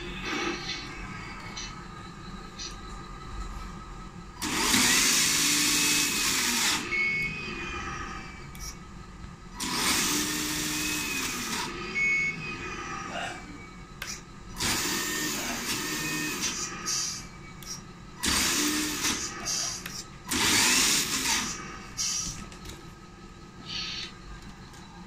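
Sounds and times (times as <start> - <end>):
electric motor and gearbox whirring: 4.3 - 8.8, 9.5 - 23.0.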